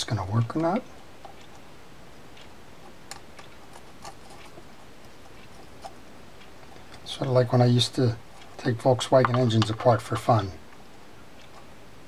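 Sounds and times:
steady low hiss: 0.0 - 12.0
faint metal parts clicking: 8.2 - 10.5.

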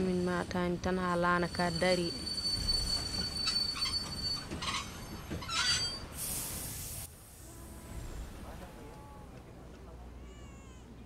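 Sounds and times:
train wheels rumbling on rails: 0.0 - 6.2
high wheel squeal: 1.5 - 6.2
brief hiss: 6.1 - 9.0.

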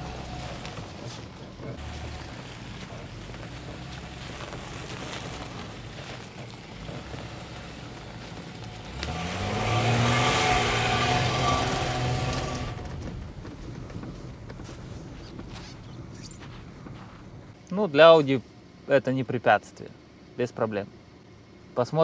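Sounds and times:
car engine accelerating: 0.0 - 17.6.

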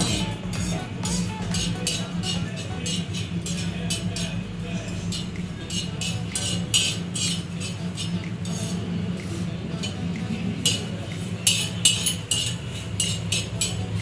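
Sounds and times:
spatula scraping on iron pan: 0.0 - 4.4, 5.1 - 10.0, 10.6 - 14.0
low steady hum: 0.0 - 12.9.

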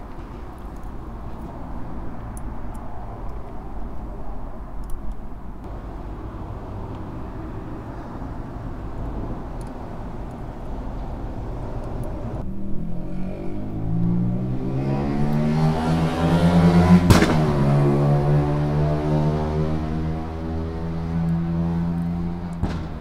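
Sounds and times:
engine rumbling: 0.0 - 23.0
engine revving: 8.6 - 23.0.

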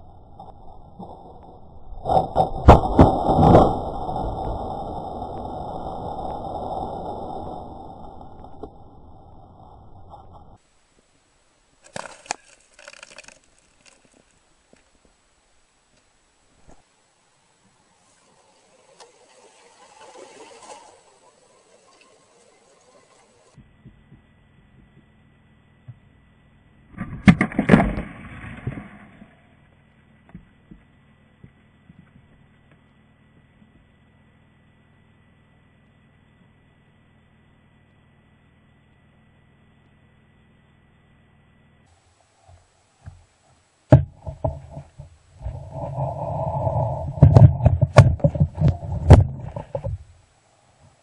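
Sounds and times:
sharp cracks: 0.4 - 9.4, 11.8 - 15.2, 26.9 - 29.5
rush of pressurised water and air: 18.0 - 23.6, 45.4 - 50.0.

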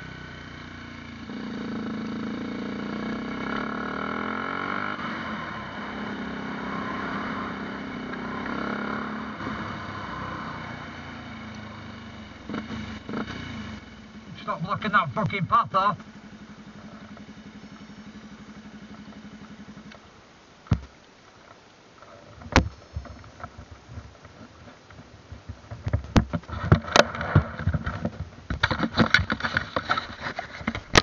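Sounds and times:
motorcycle engine idling: 0.0 - 21.1.

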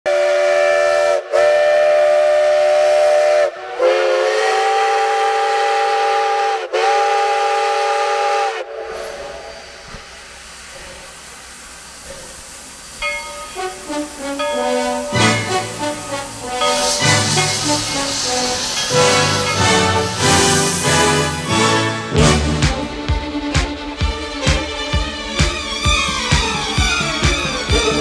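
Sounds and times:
steam locomotive whistle blasts: 0.1 - 11.0, 12.8 - 22.9
steam hissing: 0.1 - 22.8, 24.3 - 28.0.

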